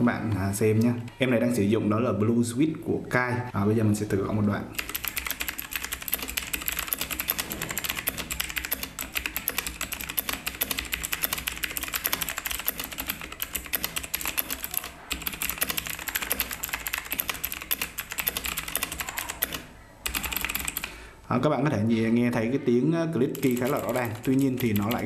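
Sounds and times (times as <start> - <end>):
mechanical keyboard typing clicks: 4.8 - 21.0, 23.3 - 25.0.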